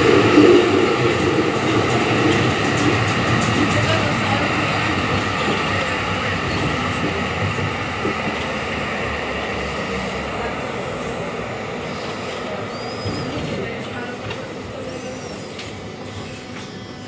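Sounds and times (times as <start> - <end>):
tram rumble and wheel noise: 0.0 - 17.0.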